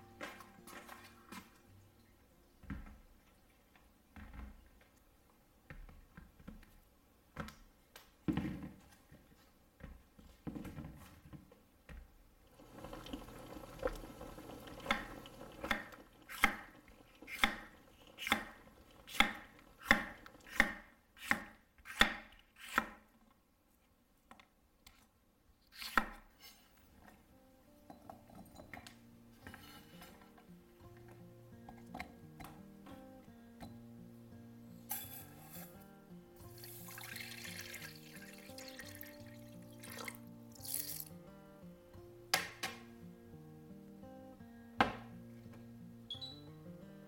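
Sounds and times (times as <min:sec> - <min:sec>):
water bubbling in a pot: 0:12.5 - 0:20.5, 0:36.6 - 0:40.2.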